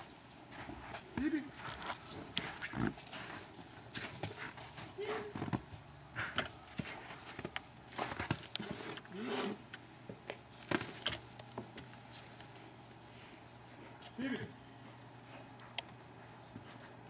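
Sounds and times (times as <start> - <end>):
footsteps crunching in snow: 1.6 - 5.7.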